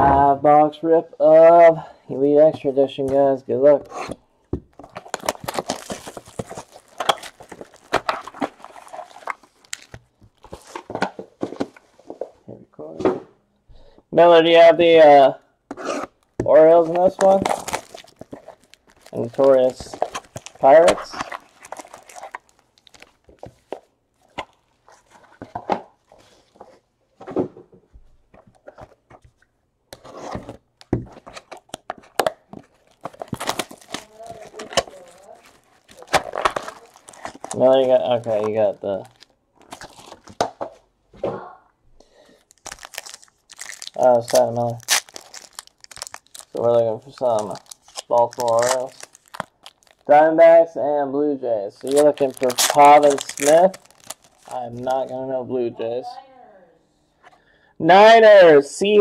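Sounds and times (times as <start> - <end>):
cardboard box and card packs handled: 3.8 - 12.4, 15.7 - 27.5, 28.2 - 40.8, 42.2 - 50.2, 51.8 - 55.2
plastic wrapper crinkling: 4.7 - 11.0, 15.8 - 26.6, 30.4 - 40.5, 42.1 - 50.1, 51.7 - 55.2.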